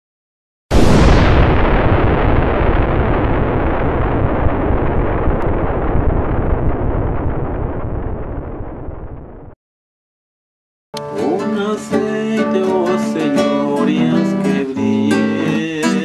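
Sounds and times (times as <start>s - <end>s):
rumbling explosion boom: 0.7s - 9.6s.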